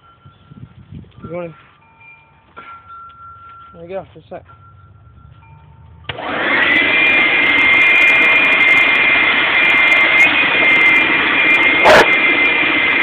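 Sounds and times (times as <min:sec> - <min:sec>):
leaf blower running: 0:06.1 - 0:13.0.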